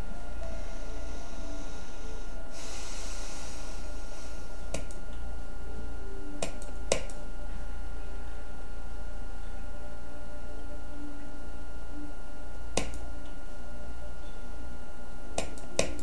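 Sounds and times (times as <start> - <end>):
low electrical hum: 0.0 - 16.0
breath near microphone: 0.6 - 4.7.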